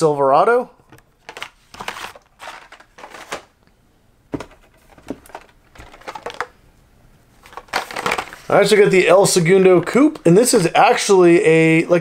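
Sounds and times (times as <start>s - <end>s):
cardboard and plastic rustling: 0.9s - 3.6s, 4.3s - 6.6s, 7.4s - 8.9s.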